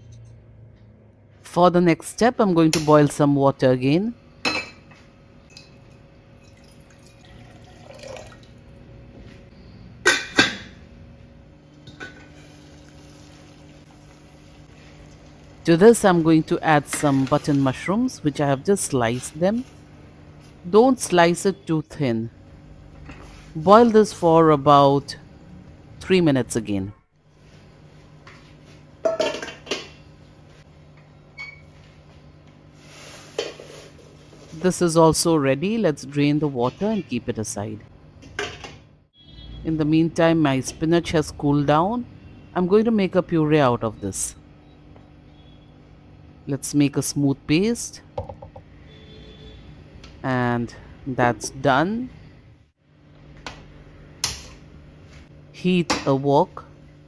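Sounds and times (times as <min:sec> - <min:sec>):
water pouring into pot: 0:06.4 - 0:08.6, 0:12.6 - 0:15.5.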